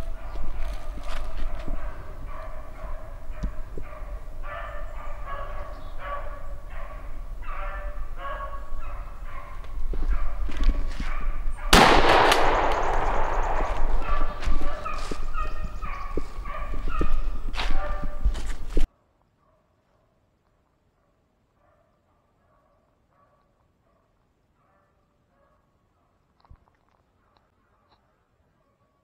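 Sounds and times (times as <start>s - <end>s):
dogs baying: 0.0s - 18.3s
shotgun blast: 11.7s - 15.2s.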